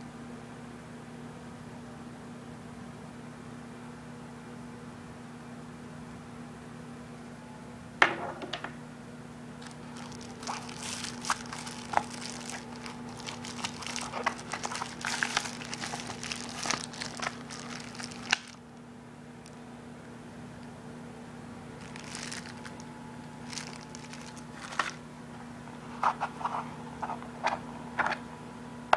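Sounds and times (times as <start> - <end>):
steady low hum: 5.0 - 28.9
plastic bag crinkling: 9.6 - 18.7, 21.8 - 25.0.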